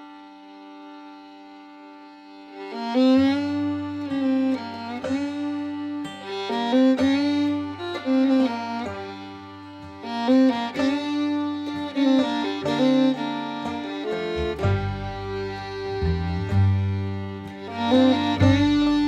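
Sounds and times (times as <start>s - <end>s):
fiddle-like string melody: 0.0s - 19.0s
held low bass note: 14.1s - 19.0s.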